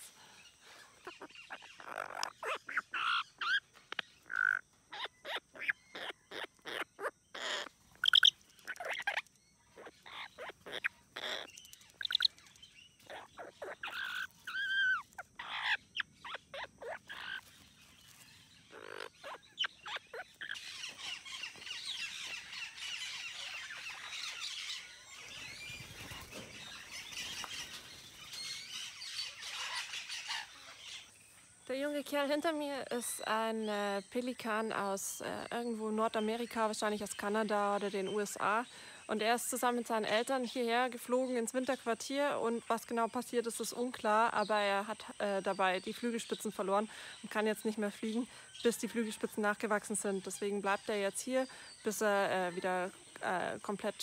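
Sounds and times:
parrots chattering: 0.0 - 27.9, 28.6 - 31.1
parrots squawking: 1.0 - 12.3, 13.0 - 17.6, 18.2 - 24.9.

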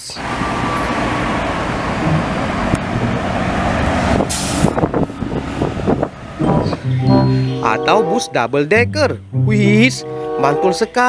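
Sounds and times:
bus engine: 0.0 - 11.0
traffic noise: 0.0 - 11.0
air brake hiss: 4.3 - 4.7.

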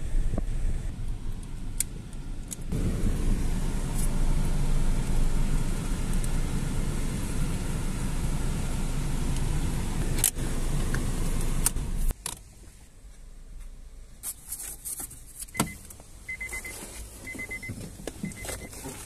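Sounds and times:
car engine idling: 0.0 - 12.1
car warning chime beeping: 15.6 - 18.8.

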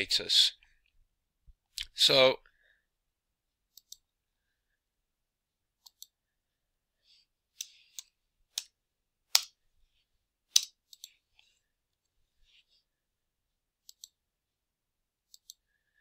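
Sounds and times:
computer mouse clicks: 3.7 - 4.0, 5.8 - 6.2, 10.5 - 11.2, 13.8 - 14.2, 15.3 - 15.6.

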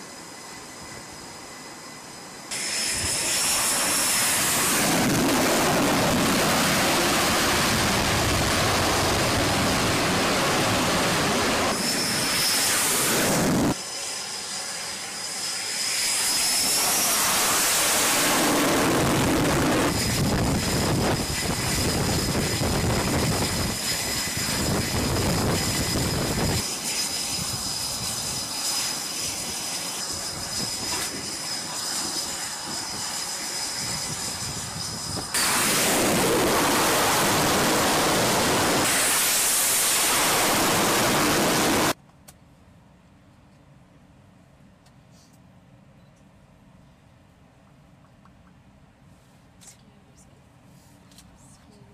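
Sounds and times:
high turbine whine: 0.0 - 42.0
jet engines running loud: 0.0 - 42.0.

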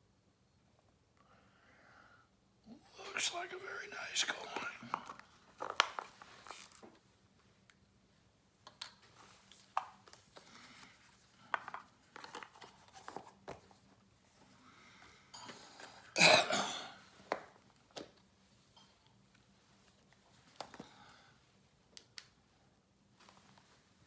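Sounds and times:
soft rustling: 4.3 - 8.2, 9.0 - 16.1, 23.1 - 24.0.

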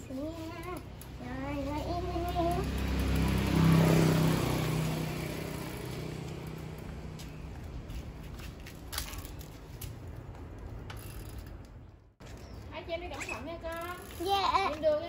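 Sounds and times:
passing vehicle engine hum: 0.0 - 8.3.

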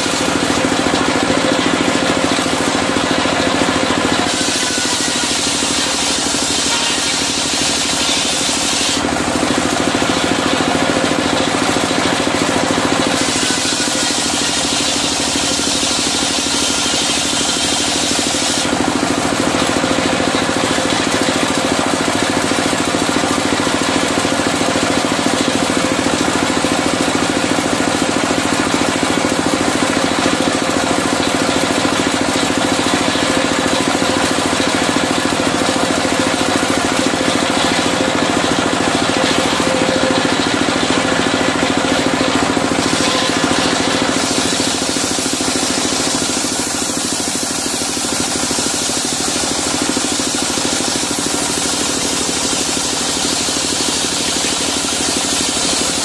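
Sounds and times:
circular saw cutting timber: 0.0 - 56.0
diesel engine running: 0.0 - 56.0.

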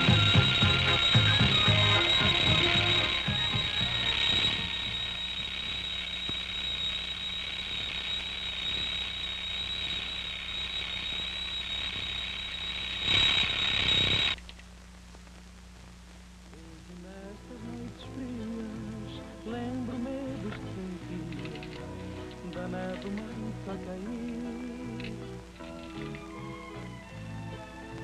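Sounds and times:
crickets trilling: 0.0 - 14.4
faint low hum: 0.0 - 28.0.

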